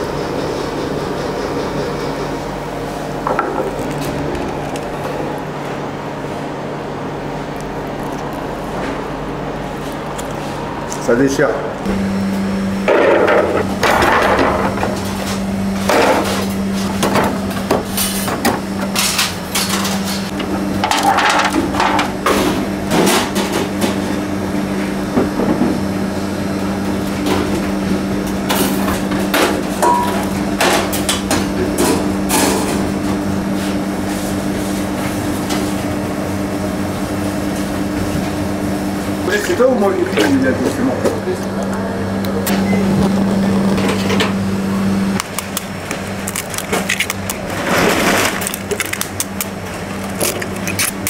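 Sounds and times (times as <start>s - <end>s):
steady machine hum: 0.0s - 51.0s
bread tearing by hand: 45.2s - 51.0s.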